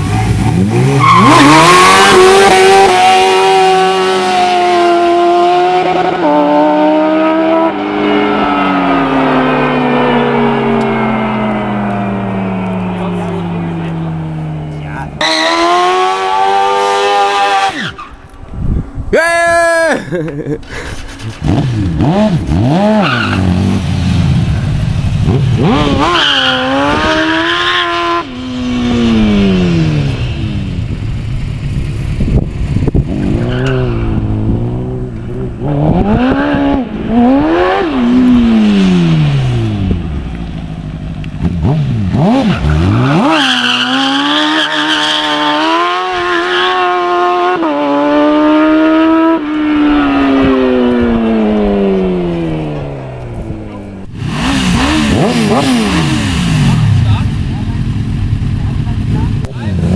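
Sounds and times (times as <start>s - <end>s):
car engine revving: 0.0s - 18.1s, 20.6s - 59.9s
tyre squeal: 1.0s - 2.2s, 17.2s - 18.2s, 22.9s - 23.5s, 42.6s - 47.0s.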